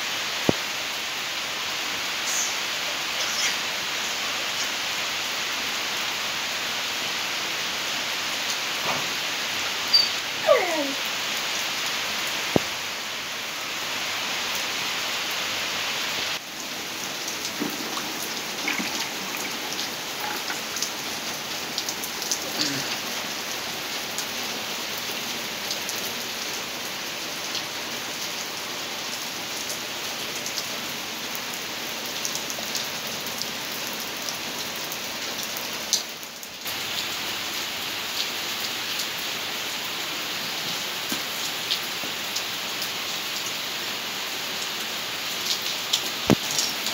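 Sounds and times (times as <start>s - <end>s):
rain on pavement and puddles: 0.0s - 46.9s
raindrop ticks: 12.5s - 12.8s, 45.5s - 46.9s.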